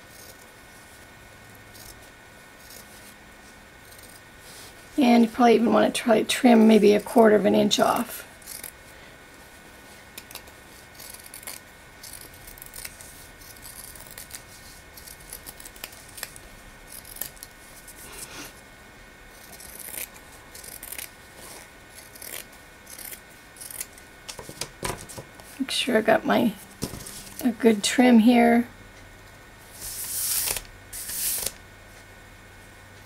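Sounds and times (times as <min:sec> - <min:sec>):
scissors snipping fabric: 0:10.2 - 0:17.5, 0:19.4 - 0:21.1, 0:22.0 - 0:24.6.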